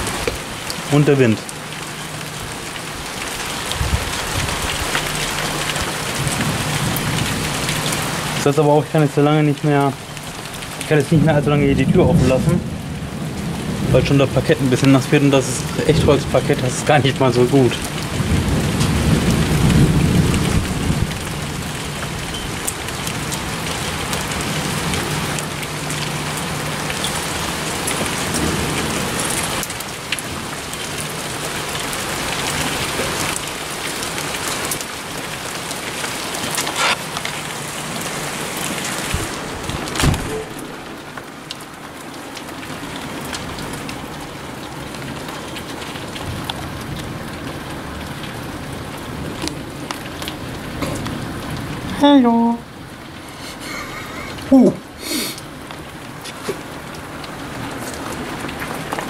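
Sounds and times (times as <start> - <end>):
heavy rain pouring: 0.0 - 59.0
low thunder rumble: 10.8 - 30.5.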